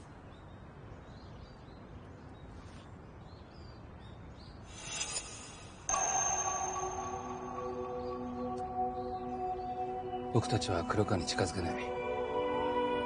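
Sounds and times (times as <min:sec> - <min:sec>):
faint bird chirps: 0:00.0 - 0:11.5
music of held steady tones: 0:05.9 - 0:13.0.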